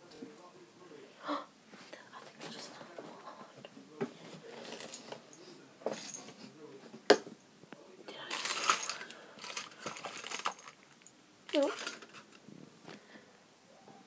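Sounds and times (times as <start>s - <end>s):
rustling and scraping: 1.7s - 7.0s, 8.3s - 13.1s.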